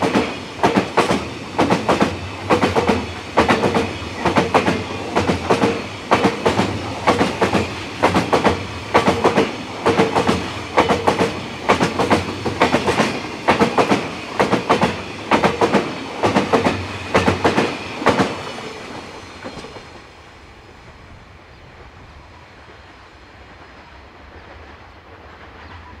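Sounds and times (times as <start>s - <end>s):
train wheels clattering over joints: 0.0s - 18.6s.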